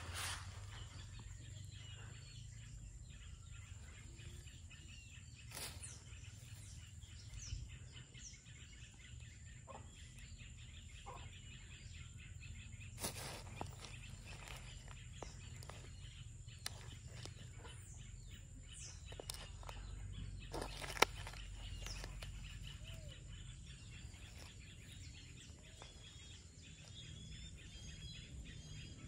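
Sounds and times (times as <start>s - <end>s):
rustles in grass: 0.0s - 1.3s, 5.5s - 6.8s, 13.0s - 17.6s
faint bird chirps: 0.0s - 29.0s.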